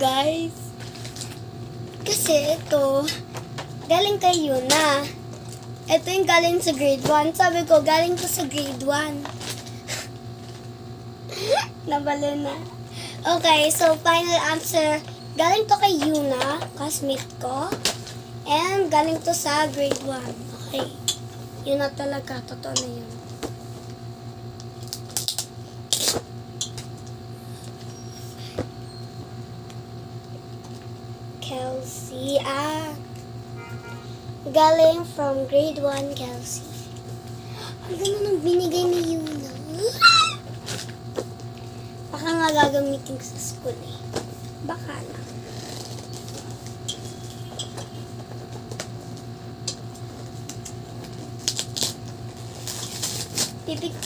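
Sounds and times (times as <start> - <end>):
steady low hum: 0.0 - 54.0
wrapping paper crinkling: 51.3 - 54.0.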